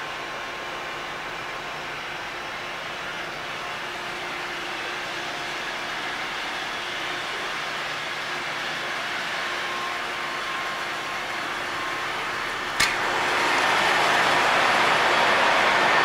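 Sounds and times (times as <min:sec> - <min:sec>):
muffled engine room machinery: 0:00.0 - 0:16.0.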